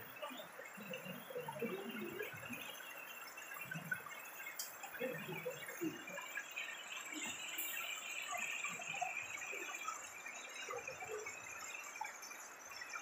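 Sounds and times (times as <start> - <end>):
faint murmuring voices: 0.0 - 11.7.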